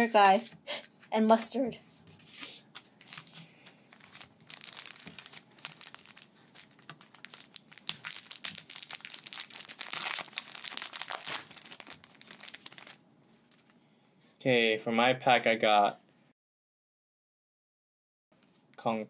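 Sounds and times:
foil wrapper crinkling: 3.0 - 13.0
foil wrapper tearing: 3.0 - 13.0.

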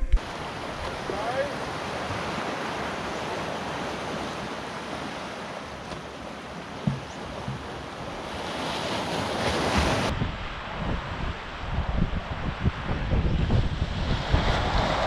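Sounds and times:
wind on microphone: 0.0 - 5.2, 6.8 - 15.0
waves breaking on rocks: 0.0 - 11.8.

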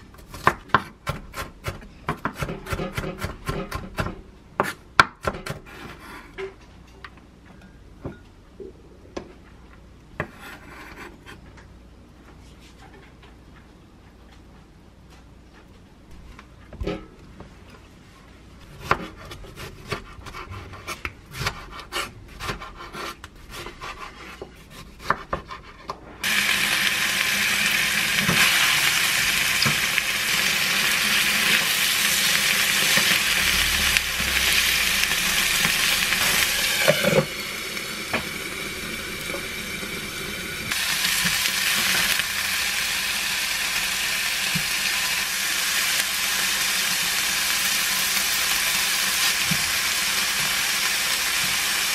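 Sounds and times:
chicken sizzling in a pan: 26.2 - 51.9.

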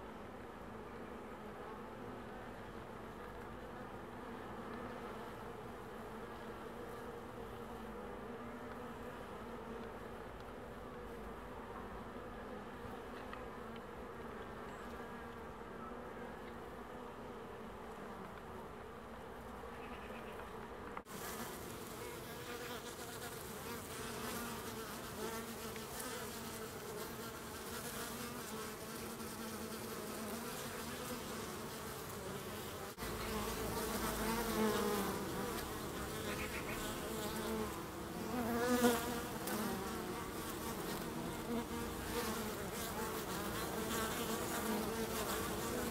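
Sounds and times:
honeybees buzzing: 19.7 - 45.9.

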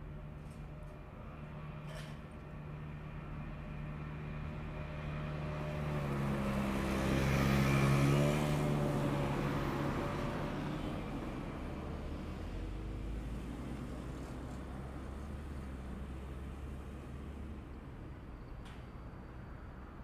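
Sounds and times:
vehicle passing by: 3.8 - 17.7.

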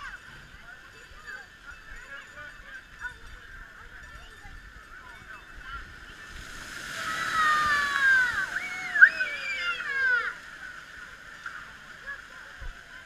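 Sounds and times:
water splashing: 4.6 - 13.0.

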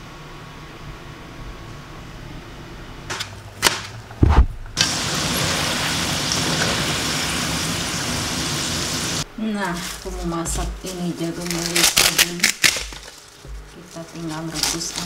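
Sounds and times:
heavy thump: 4.2 - 4.6
fries sizzling in hot oil: 4.8 - 9.3.

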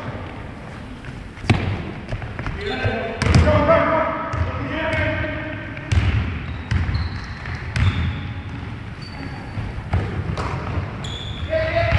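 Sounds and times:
sneaker squeaks: 0.7 - 3.4, 5.8 - 11.9
basketball bouncing on hardwood: 3.2 - 3.5, 4.3 - 5.2, 5.8 - 8.7.

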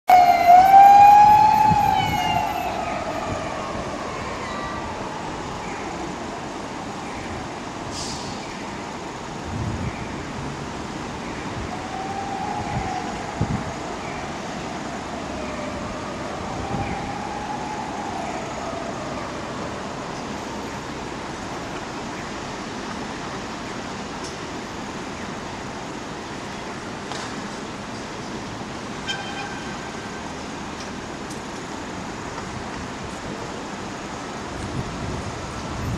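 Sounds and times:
city traffic noise: 0.0 - 35.9
siren wailing: 0.1 - 5.9, 11.7 - 13.9, 14.9 - 19.6.

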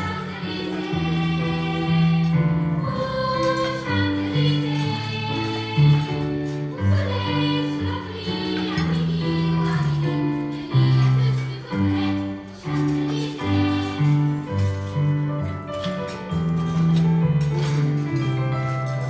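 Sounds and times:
children's choir singing: 0.0 - 15.2
instrumental accompaniment: 0.0 - 19.0.

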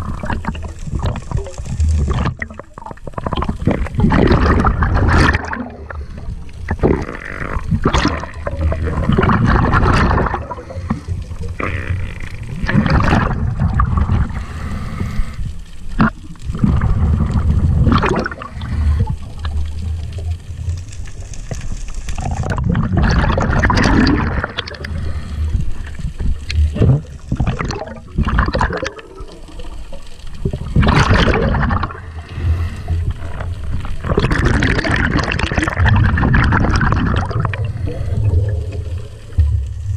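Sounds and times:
underwater bubbling and gurgling: 0.0 - 39.9.

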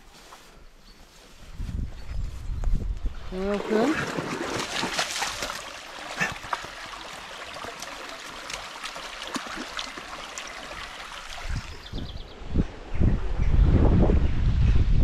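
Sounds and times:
stream trickling over stones: 3.4 - 12.0
dog splashing through water: 3.5 - 11.6.

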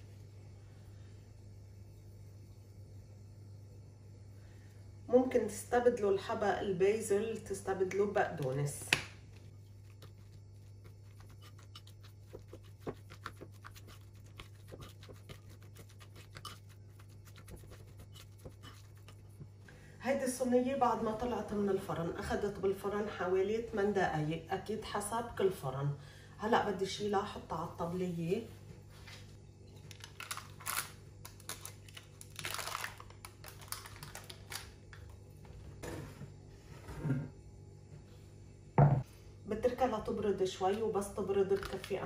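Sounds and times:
spoon scraping ceramic bowl: 11.0 - 19.3.

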